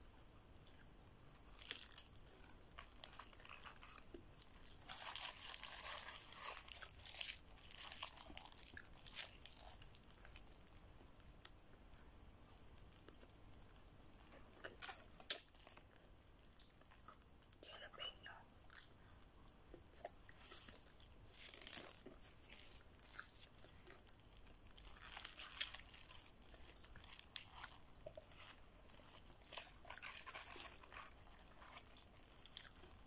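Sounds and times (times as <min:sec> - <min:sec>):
paper wrapper crinkling: 0:01.3 - 0:10.8, 0:14.6 - 0:17.0, 0:20.3 - 0:33.0
biting and chewing: 0:18.6 - 0:33.0.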